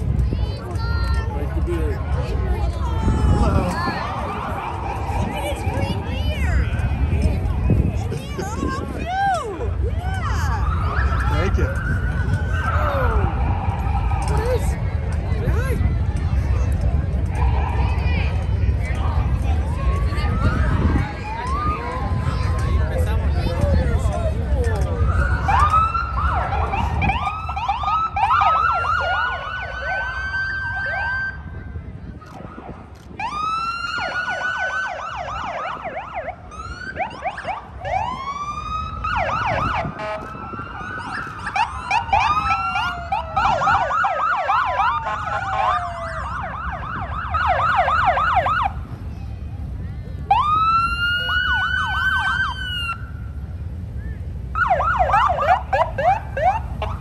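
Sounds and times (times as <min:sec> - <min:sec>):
police motorcycle sirens wailing: 0:00.0 - 0:57.0.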